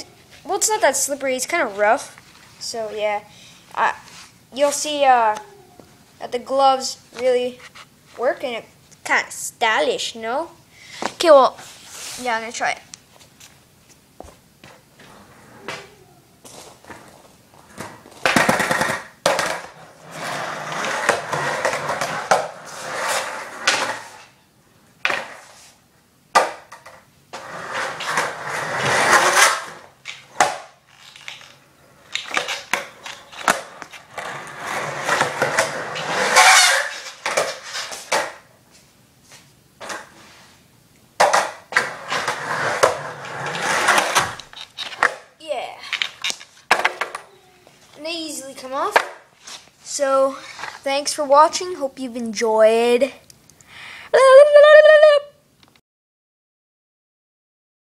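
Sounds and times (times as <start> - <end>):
skateboard wheels rolling on concrete: 14.2 - 24.4, 25.0 - 40.6, 41.2 - 51.9.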